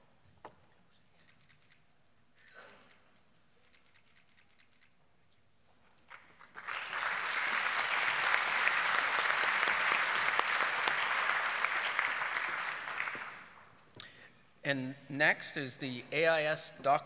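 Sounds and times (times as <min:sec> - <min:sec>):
audience applauding: 0:06.0 - 0:13.7.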